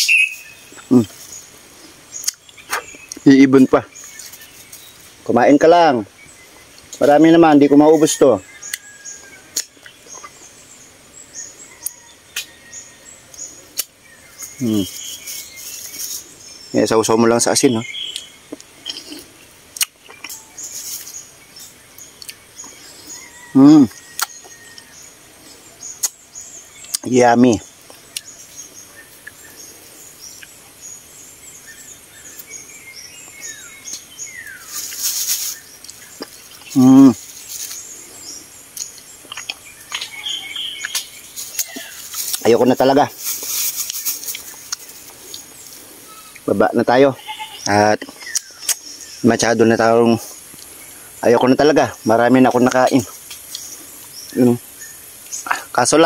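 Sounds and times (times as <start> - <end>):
bird falling whistles: 0.0 - 0.5
birds and insects chirping: 0.0 - 56.0
lip-smack clicks: 19.8 - 20.2, 24.2 - 24.4.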